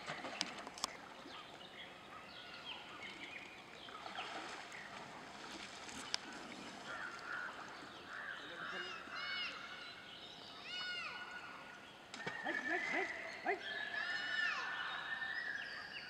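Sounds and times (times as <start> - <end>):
water sloshing and splashing: 0.0 - 2.0, 2.8 - 8.2.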